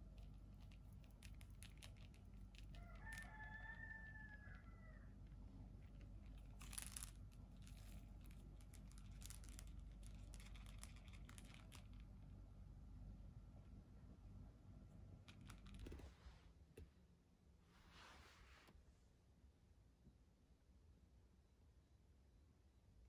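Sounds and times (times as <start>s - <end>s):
kitten batting plastic toy: 0.0s - 3.4s.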